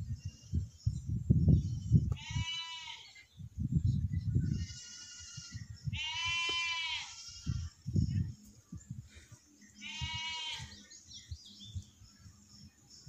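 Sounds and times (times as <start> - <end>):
distant goats bleating: 2.0 - 3.2, 4.5 - 7.8, 9.8 - 10.8.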